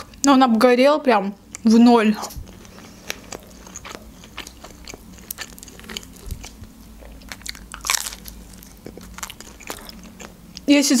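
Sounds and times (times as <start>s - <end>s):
person chewing food: 2.2s - 10.7s
crunchy bite into pizza: 3.1s - 10.3s.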